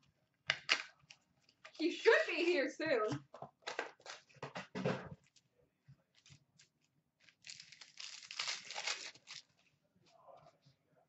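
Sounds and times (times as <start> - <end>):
wrapper ripping: 7.2 - 9.5
card pack wrappers crinkling: 7.2 - 9.6.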